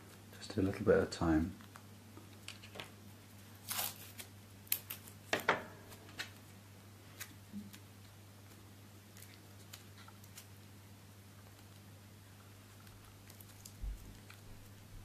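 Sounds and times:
paper crinkling: 0:01.6 - 0:05.2, 0:05.9 - 0:10.7, 0:11.4 - 0:15.0
masking tape tearing: 0:03.6 - 0:05.2.

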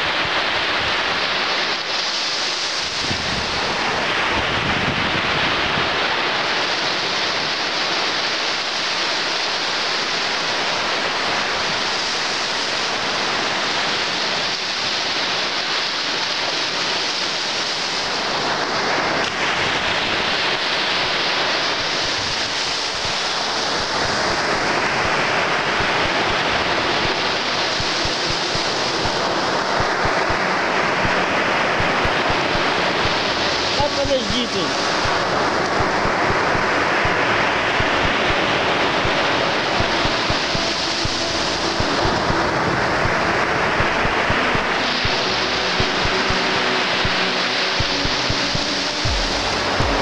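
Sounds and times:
waves washing up sandy beach: 0:00.0 - 0:50.0
wind buffeting microphone: 0:03.0 - 0:05.9.

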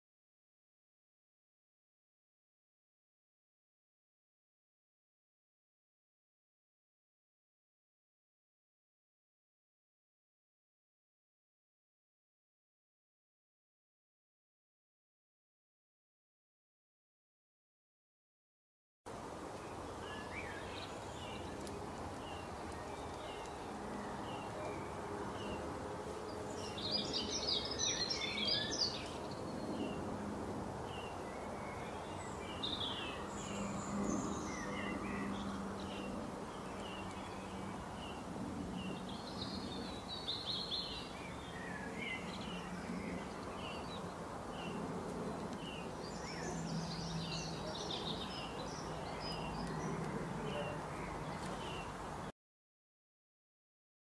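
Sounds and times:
faint low background noise: 0:19.1 - 0:52.3
birds chirping and singing: 0:26.3 - 0:30.0.

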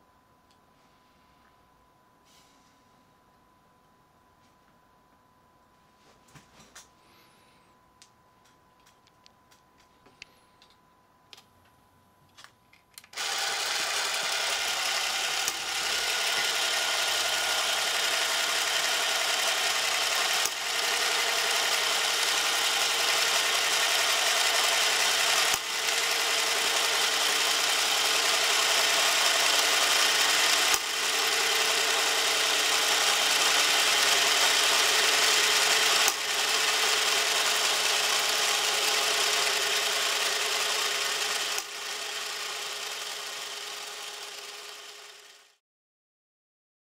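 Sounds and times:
clockwork camera motor whirring: 0:13.0 - 0:45.6.

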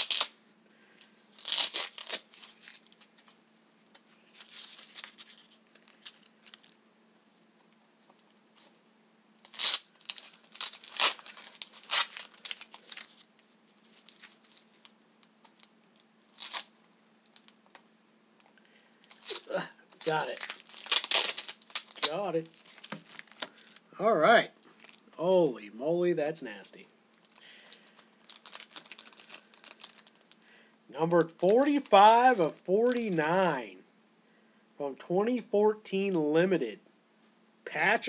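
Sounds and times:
plastic packaging crinkling and ripping: 0:00.0 - 0:00.4, 0:01.0 - 0:06.8, 0:09.4 - 0:17.8, 0:19.0 - 0:23.8, 0:24.7 - 0:25.1, 0:27.1 - 0:30.4, 0:31.2 - 0:33.2.

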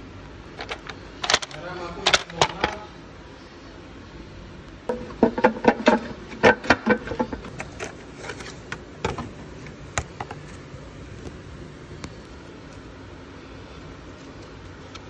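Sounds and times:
hand tools knocking on metal: 0:04.9 - 0:07.5.

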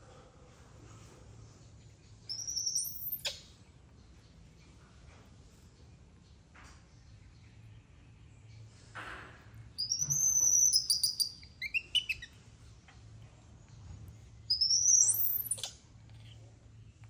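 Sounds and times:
baby monkey squealing: 0:02.3 - 0:03.5, 0:09.8 - 0:12.3, 0:14.5 - 0:15.8.

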